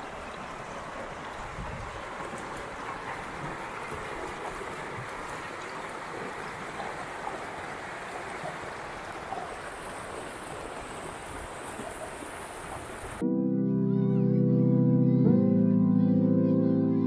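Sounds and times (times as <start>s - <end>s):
river rushing over rocks: 0.0s - 13.2s.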